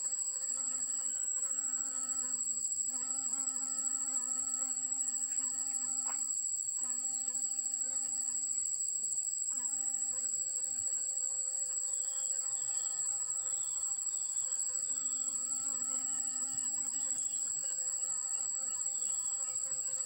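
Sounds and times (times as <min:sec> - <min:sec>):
shrill insect drone: 0:00.0 - 0:08.8, 0:09.5 - 0:20.0
bee buzzing: 0:00.0 - 0:20.0.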